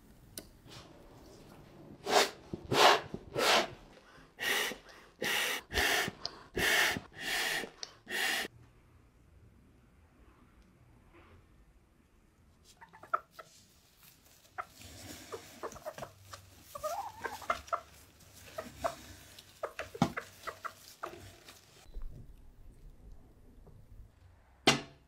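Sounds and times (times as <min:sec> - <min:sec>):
rustling of straw and cardboard: 0:12.6 - 0:21.9
hens clucking: 0:12.7 - 0:21.9.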